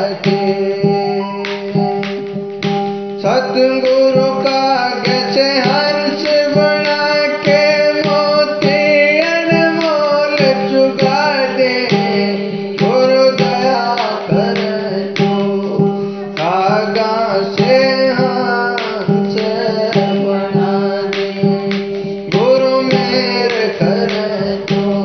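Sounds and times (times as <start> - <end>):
regular beat: 0.0 - 25.0
sliding lead melody: 0.0 - 25.0.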